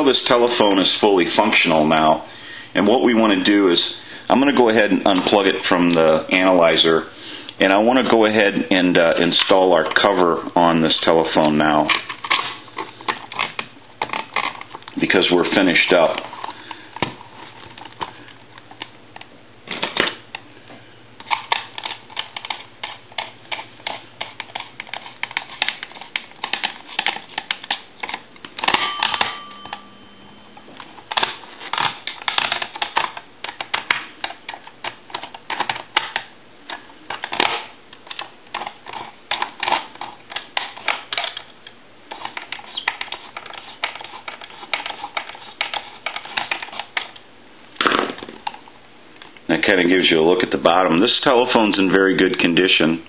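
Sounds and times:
screwdriver clicking and scraping: 0:21.2 - 0:28.8, 0:42.1 - 0:47.2.

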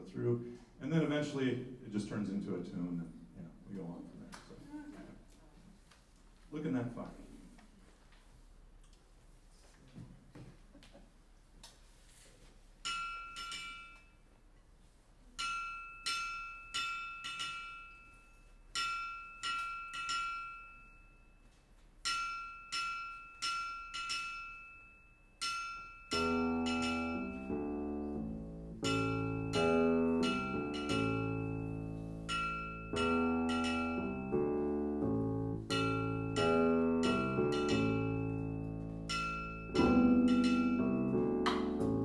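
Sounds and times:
anvil ringing taps: 0:12.8 - 0:14.2, 0:15.4 - 0:21.0, 0:22.0 - 0:27.6, 0:28.8 - 0:34.4, 0:35.7 - 0:41.8
keyboard bass line: 0:26.2 - 0:32.3, 0:32.9 - 0:42.0.

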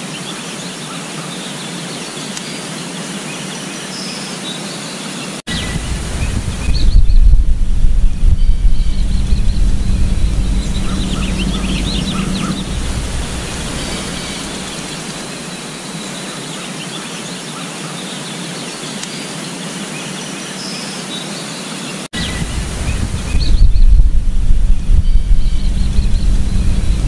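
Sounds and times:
small birds chirping: 0:00.0 - 0:27.0
wind rumble on microphone: 0:05.5 - 0:16.2, 0:22.2 - 0:27.0
steady rushing noise: 0:05.5 - 0:16.4, 0:22.2 - 0:27.0.

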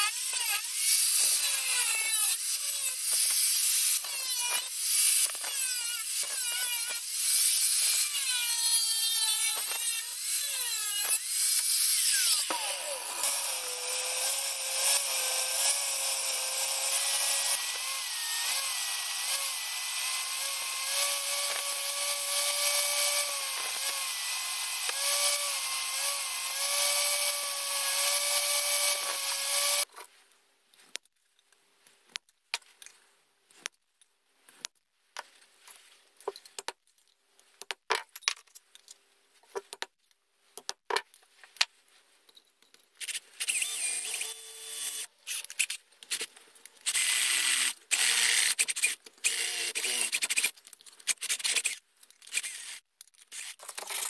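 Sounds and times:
angle grinder grinding steel: 0:00.0 - 0:29.9.

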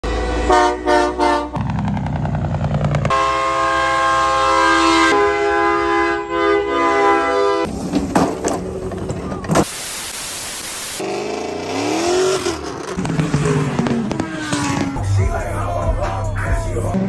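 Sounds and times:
truck air horn blasts: 0:00.0 - 0:01.6, 0:03.0 - 0:07.7
diesel engine rumble: 0:00.0 - 0:04.6, 0:07.7 - 0:09.8, 0:11.0 - 0:17.0.

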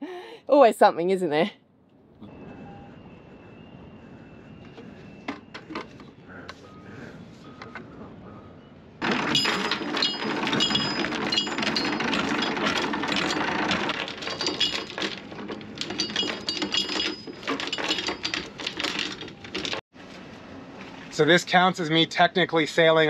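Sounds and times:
anchor chain rattling: 0:09.0 - 0:19.8.

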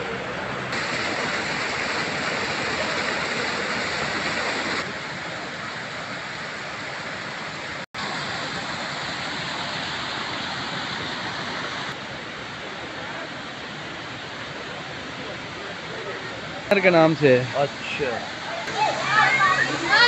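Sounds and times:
small waterfall splashing: 0:00.7 - 0:20.0.

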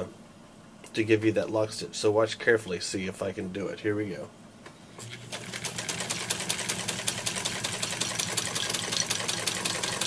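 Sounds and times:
sewing machine motor hum: 0:05.0 - 0:10.0
sewing machine needle clatter: 0:05.0 - 0:10.0.

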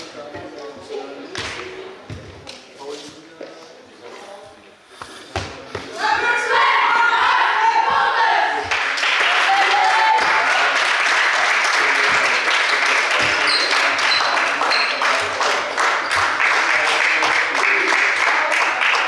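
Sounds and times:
voices: 0:00.0 - 0:10.6
applause: 0:08.6 - 0:19.0.

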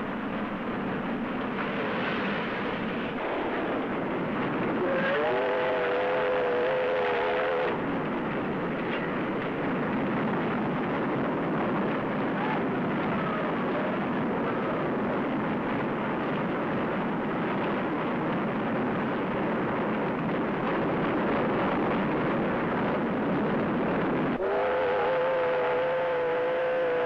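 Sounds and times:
steam locomotive running: 0:00.0 - 0:27.0
steam whistle chord: 0:24.4 - 0:27.0.

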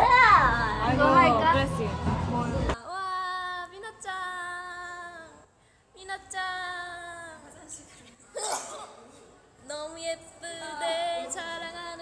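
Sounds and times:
loud voices: 0:00.0 - 0:02.8.

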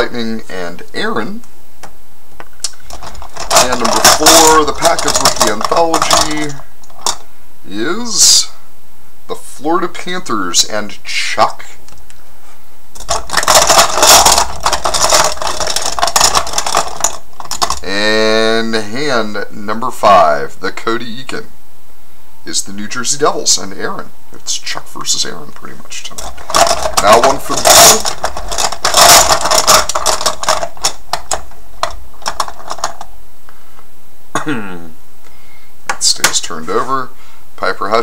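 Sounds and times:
poker chips clattering: 0:02.8 - 0:07.2, 0:13.0 - 0:17.9, 0:26.1 - 0:33.0.

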